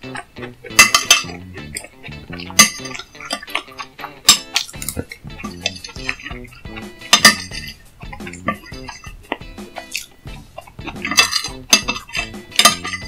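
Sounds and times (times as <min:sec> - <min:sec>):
background music: 0:00.0 - 0:13.0
utensils clinking on a dish: 0:00.0 - 0:13.0.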